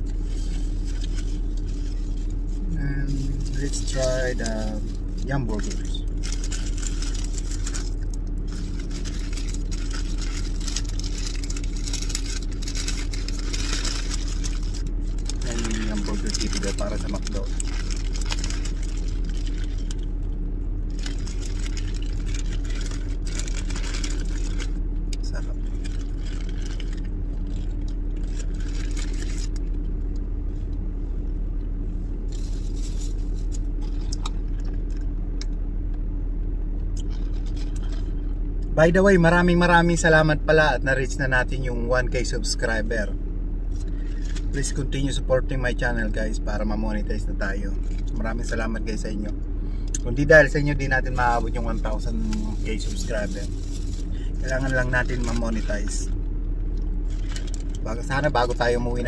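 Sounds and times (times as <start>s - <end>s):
paper wrapper crinkling: 0.0s - 20.1s, 20.9s - 29.8s, 32.3s - 35.0s, 37.0s - 38.3s, 43.8s - 44.8s, 50.4s - 58.8s
car idling hum: 0.0s - 59.0s.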